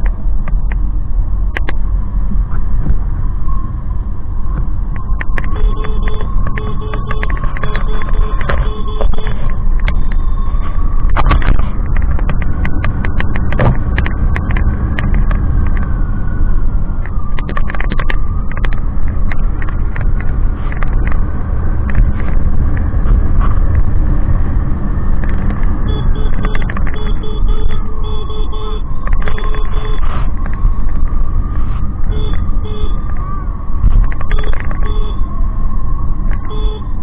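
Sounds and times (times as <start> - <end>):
sharp clicks and knocks: 0.0 - 0.9, 1.5 - 1.8, 4.5 - 15.9, 17.0 - 24.0, 25.1 - 31.2, 33.8 - 35.2
faint whine: 0.0 - 37.0
motorcycle engine rumble: 0.0 - 37.0.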